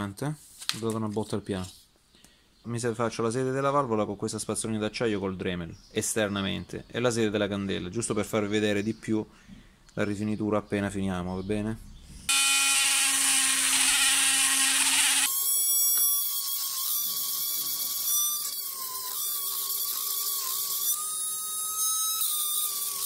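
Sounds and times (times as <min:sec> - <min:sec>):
rotary tool wire brush whine: 0:12.3 - 0:23.0.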